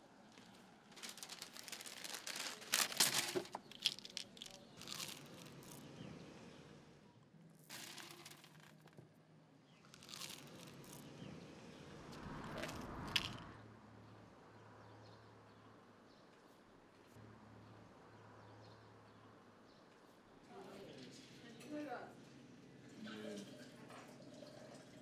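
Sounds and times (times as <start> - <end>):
packaging crinkling and rustling: 0.3 - 5.8, 7.7 - 9.0, 10.0 - 11.1.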